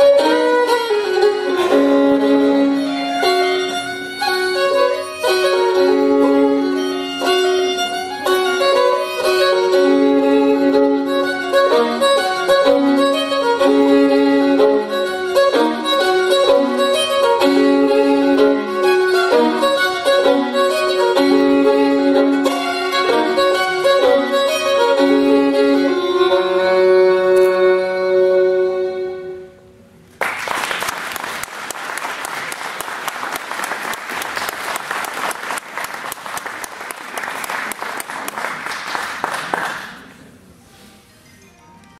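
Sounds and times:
fiddle playing a jig: 0.0 - 29.7
audience applause: 30.2 - 40.2.

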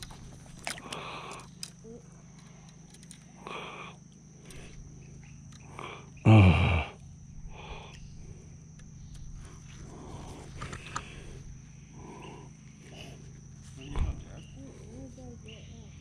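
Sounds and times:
steady low hum: 0.0 - 16.0
person grunting: 5.8 - 7.9.

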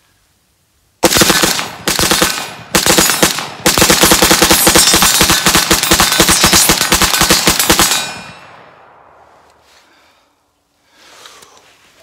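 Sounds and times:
rifle firing rapidly: 1.0 - 8.2.

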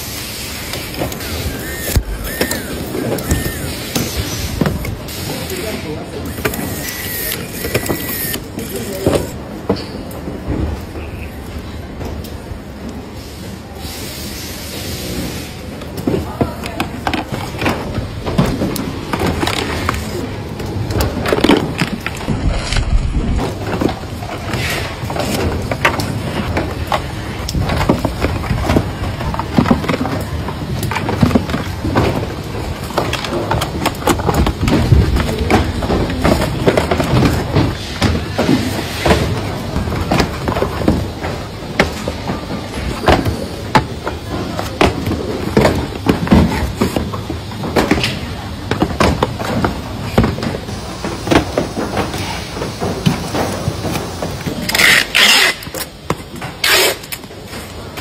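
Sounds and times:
low machine rumble: 21.8 - 23.7.

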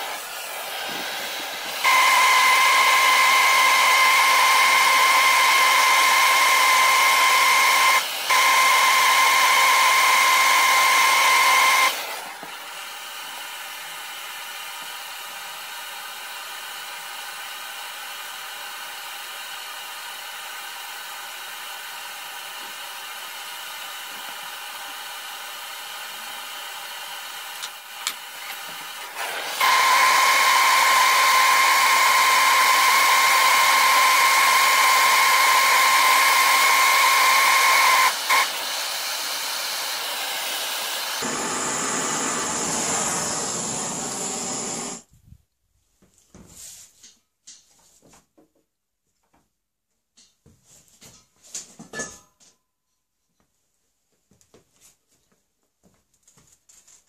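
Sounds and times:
gas torch hissing roar: 0.0 - 14.6, 25.8 - 45.1
torch clicks: 27.5 - 29.8.

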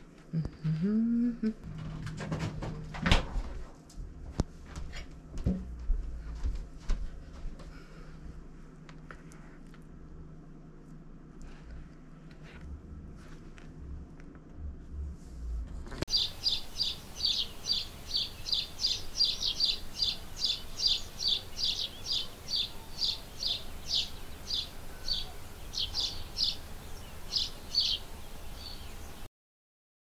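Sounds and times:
faint outdoor hiss: 0.0 - 29.3
small bird chirping: 16.1 - 29.3.

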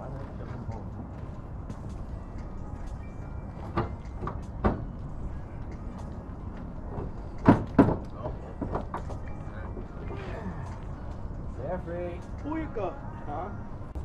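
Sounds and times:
low outdoor rumble: 0.0 - 14.0.

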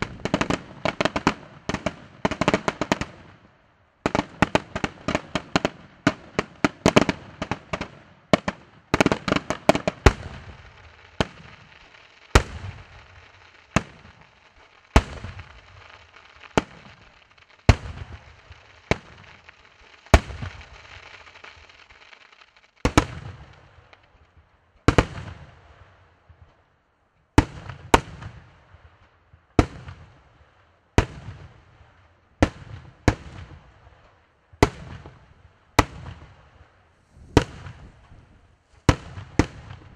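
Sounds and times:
crackling hiss: 8.9 - 25.0.

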